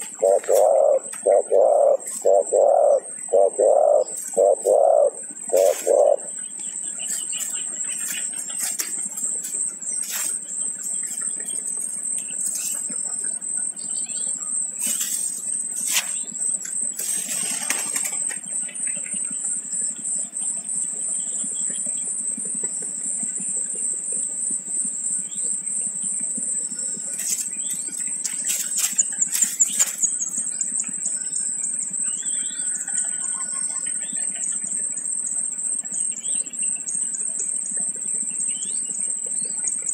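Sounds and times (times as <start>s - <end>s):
steady high-pitched whine: 0.0s - 39.9s
wing flaps and rustling: 5.5s - 6.2s, 7.0s - 11.6s, 14.8s - 19.2s, 27.0s - 30.5s.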